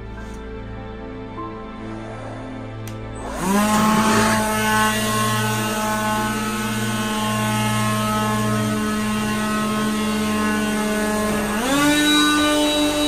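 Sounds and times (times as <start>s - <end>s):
leaf blower whining: 2.7s - 13.0s.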